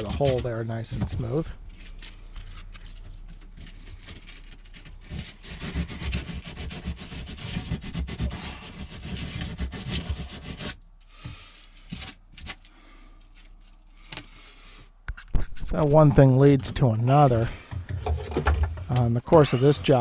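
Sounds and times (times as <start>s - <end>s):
hand sanding fiberglass: 3.0s - 11.3s.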